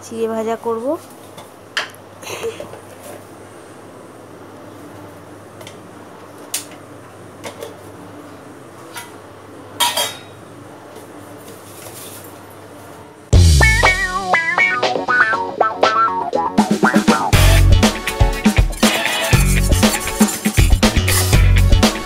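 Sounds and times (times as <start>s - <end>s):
kitchen utensils clinking: 9.8s - 10.4s
guitar and bass music: 13.3s - 22.0s
utensils clattering: 18.4s - 21.4s.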